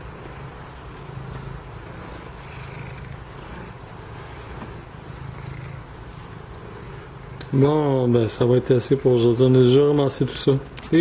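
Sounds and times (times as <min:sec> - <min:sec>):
cat purring: 0:00.0 - 0:09.8.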